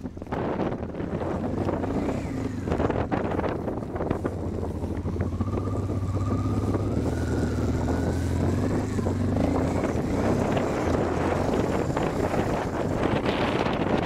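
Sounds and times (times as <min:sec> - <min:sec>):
motorcycle engine under load: 0:00.0 - 0:14.0
wind buffeting microphone: 0:00.0 - 0:14.0.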